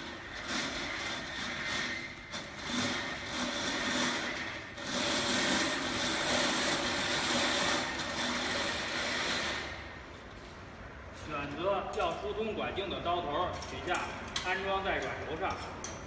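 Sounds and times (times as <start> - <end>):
steel drain cable scraping and rattling: 0.0 - 9.8.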